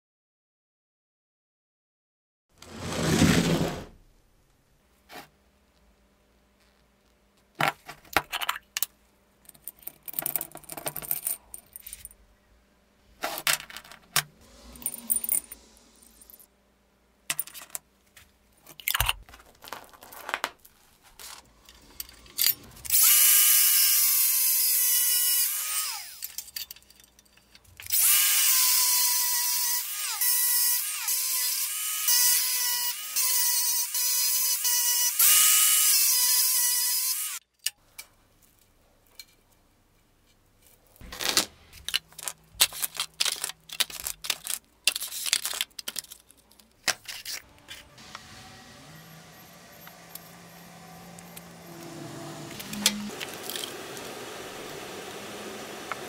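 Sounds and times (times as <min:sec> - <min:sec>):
small metal parts clicking and scraping: 0:07.8 - 0:12.2, 0:13.2 - 0:16.5, 0:17.3 - 0:17.8, 0:18.6 - 0:23.2, 0:25.9 - 0:28.3, 0:37.5 - 0:47.9, 0:52.6 - 0:53.7
power tool high whine: 0:14.4 - 0:16.4, 0:22.8 - 0:26.2, 0:27.9 - 0:37.4, 0:47.6 - 0:56.0.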